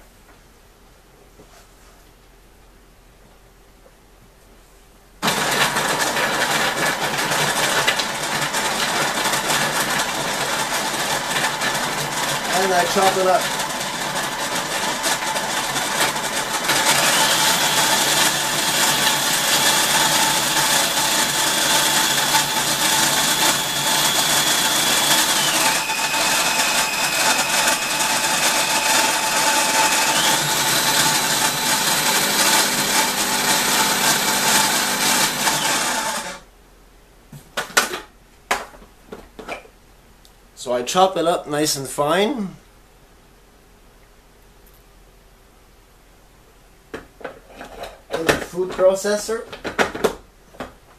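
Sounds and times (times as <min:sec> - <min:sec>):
food processor motor whining: 0:05.2 - 0:36.4.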